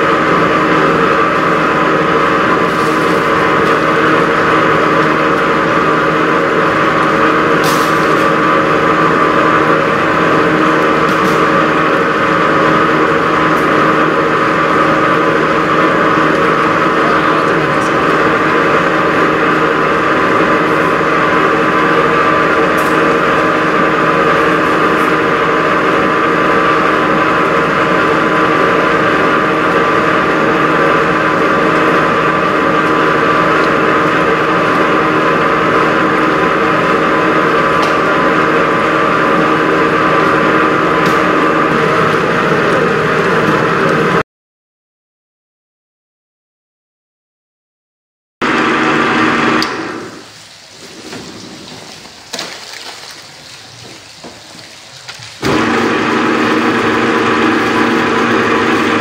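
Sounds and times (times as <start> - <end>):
electric mixer motor humming: 8.3 - 44.2, 48.4 - 50.3, 55.4 - 59.0.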